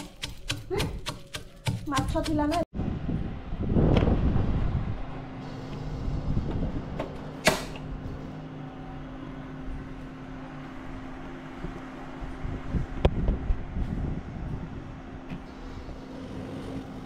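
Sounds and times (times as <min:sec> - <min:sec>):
gas burner flame: 0:14.2 - 0:17.0.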